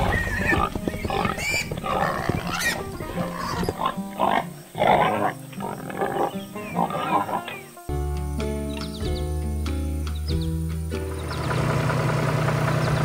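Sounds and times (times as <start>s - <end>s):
pigs grunting: 0.0s - 7.8s
background music: 0.0s - 11.6s.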